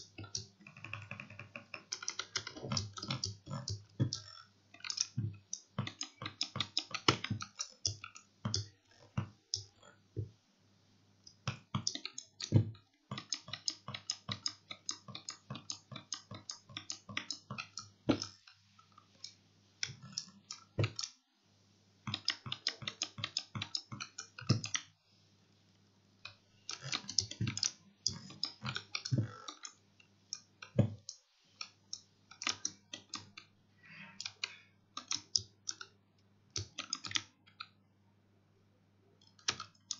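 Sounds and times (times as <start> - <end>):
fast keyboard typing clicks: 0.0 - 8.8, 11.3 - 18.4, 19.8 - 21.1, 22.0 - 24.9, 26.7 - 29.8, 32.3 - 33.4, 34.2 - 35.9, 36.6 - 37.6, 39.3 - 39.9
faint low hum: 0.0 - 39.9.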